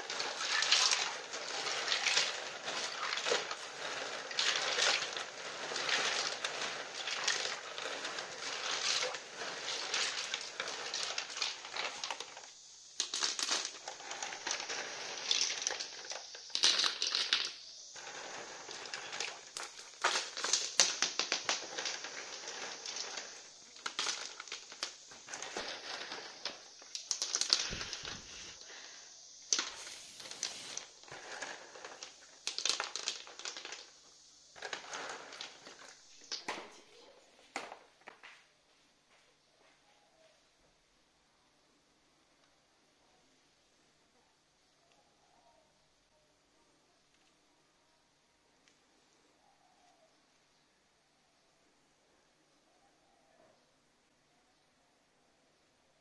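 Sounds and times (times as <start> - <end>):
stones clacking together: 0.0 - 28.6, 29.5 - 36.8
water sloshing and splashing: 0.1 - 5.2.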